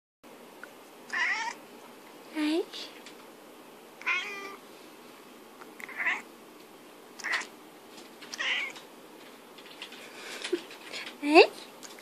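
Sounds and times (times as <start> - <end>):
cat meowing: 1.1 - 1.6, 4.0 - 4.6, 5.8 - 6.3, 7.2 - 7.5, 8.3 - 8.8.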